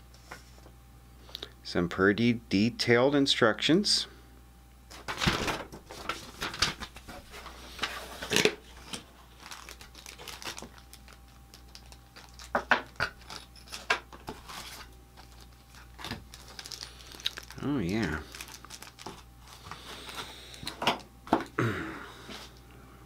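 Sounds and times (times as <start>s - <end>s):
paper and plastic rustling: 4.9s - 21.0s.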